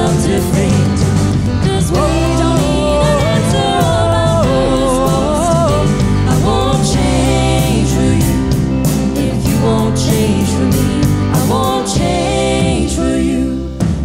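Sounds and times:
band music: 0:00.0 - 0:14.0
guitar: 0:00.0 - 0:14.0
steady drum beat: 0:00.0 - 0:14.0.

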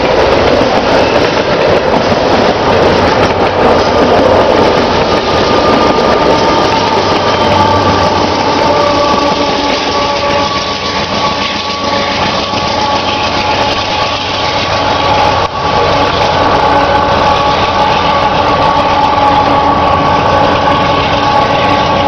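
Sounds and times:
locomotive engine rumble: 0:00.0 - 0:22.0
steady whining tones: 0:00.0 - 0:22.0
train wheel noise: 0:00.0 - 0:22.0.

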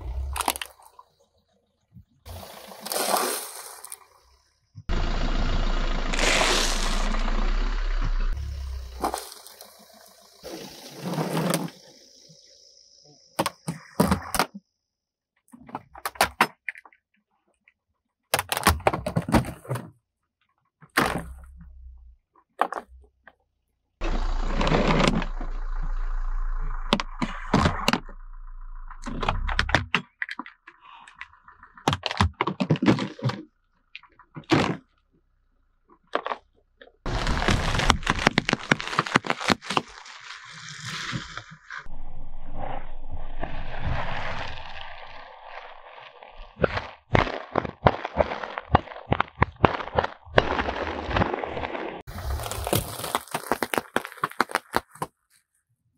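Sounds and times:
low rumble: 0:04.9 - 0:10.9, 0:24.0 - 0:29.8, 0:37.1 - 0:38.9, 0:41.9 - 0:46.6
plastic and packets crushed under tyre: 0:37.1 - 0:41.4, 0:44.2 - 0:55.5.

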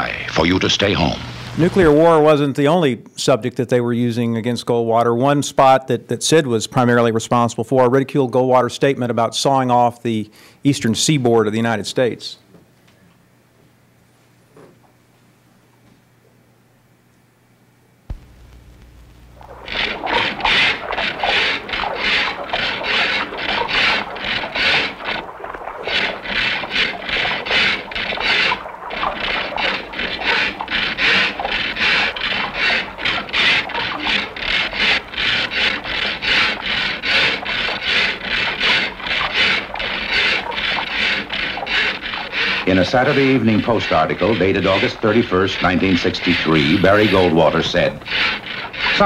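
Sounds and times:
hand saw cutting wood: 0:01.5 - 0:02.2, 0:19.4 - 0:49.0
low hum: 0:18.0 - 0:43.6.

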